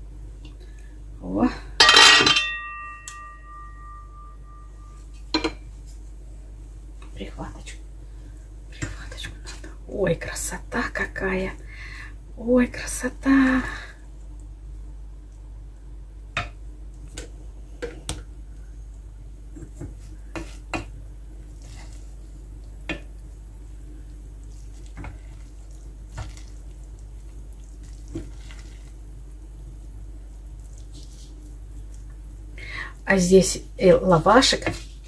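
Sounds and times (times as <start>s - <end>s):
spatula stirring rice in pot: 19.4s - 32.4s, 34.4s - 35.0s.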